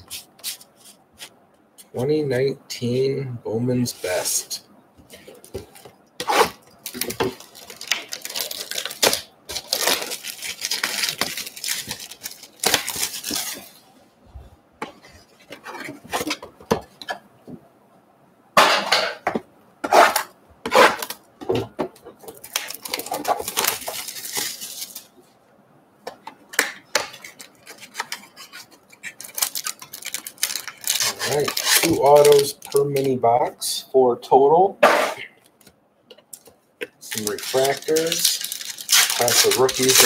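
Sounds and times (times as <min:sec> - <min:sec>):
plastic wrap rustling: 0:05.1 - 0:13.8, 0:20.0 - 0:25.2, 0:26.5 - 0:33.2, 0:36.3 - 0:40.0.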